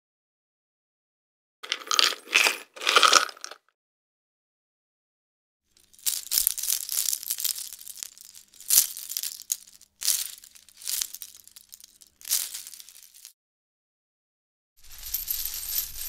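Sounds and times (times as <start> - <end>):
metal chains jingling: 5.8 - 13.3, 14.8 - 16.0.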